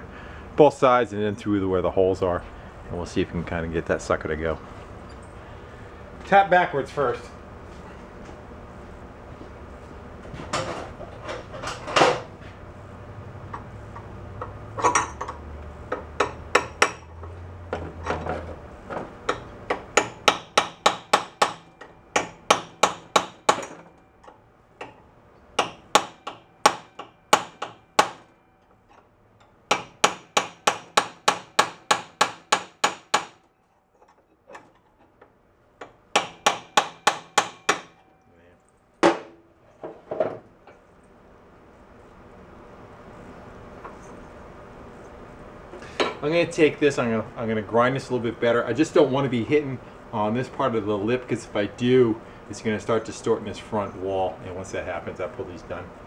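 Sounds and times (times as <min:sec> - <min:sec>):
hammer tapping on metal: 0:14.4 - 0:17.1, 0:19.3 - 0:25.0, 0:29.7 - 0:33.5, 0:35.8 - 0:38.1.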